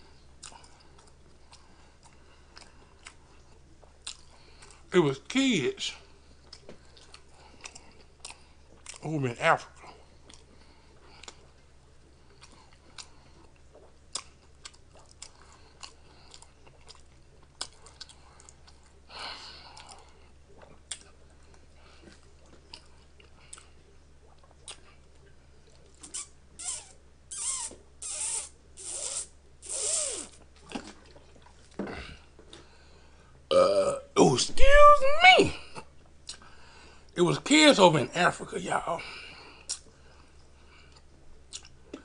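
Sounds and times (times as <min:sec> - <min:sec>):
chewing and mouth clicks: 0:00.4 - 0:04.9, 0:06.4 - 0:09.1, 0:09.8 - 0:26.8, 0:27.6 - 0:31.8, 0:36.0 - 0:36.5, 0:39.6 - 0:42.0.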